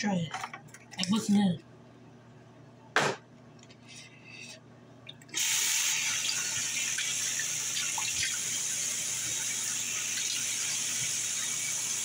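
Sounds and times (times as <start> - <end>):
tap water running into basin: 5.1 - 12.0.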